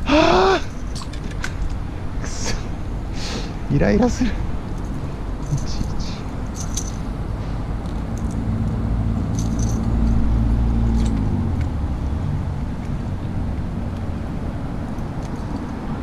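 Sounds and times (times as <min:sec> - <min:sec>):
vehicle engine passing: 0:05.2 - 0:16.0.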